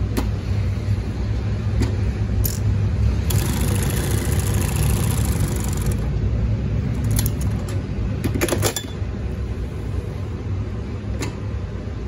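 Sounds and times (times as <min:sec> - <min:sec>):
low motor hum: 0:00.0 - 0:08.3
sewing machine stitching: 0:03.3 - 0:06.0.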